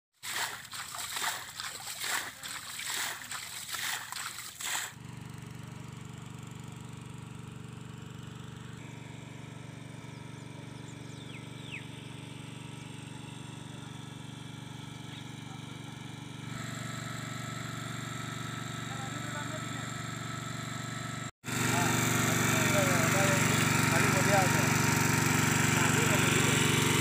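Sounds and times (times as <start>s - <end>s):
hands splashing in muddy water: 0.2s - 5.0s
water pump engine humming: 0.2s - 27.0s
bird chirps: 10.1s - 12.2s.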